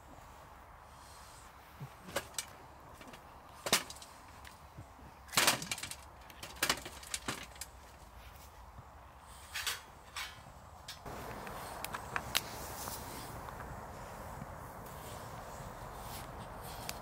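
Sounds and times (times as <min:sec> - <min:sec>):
fire crackling: 0:10.8 - 0:17.0.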